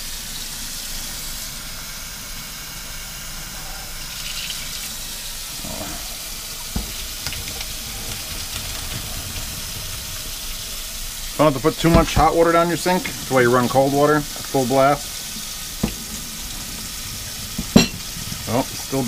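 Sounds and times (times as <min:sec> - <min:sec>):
tap water running into sink: 0:03.9 - 0:19.0.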